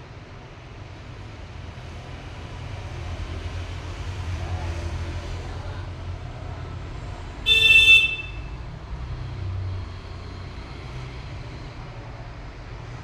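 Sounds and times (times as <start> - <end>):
vehicle horn toot: 7.4 - 8.6.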